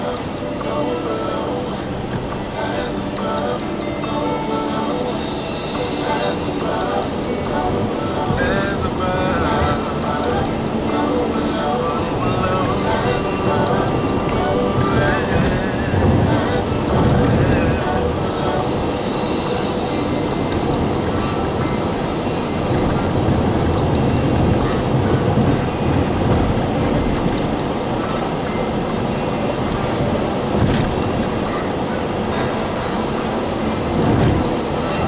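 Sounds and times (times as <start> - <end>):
car engine: 0.0 - 35.0
tyres rumbling on asphalt: 0.0 - 35.0
wind noise: 5.0 - 35.0.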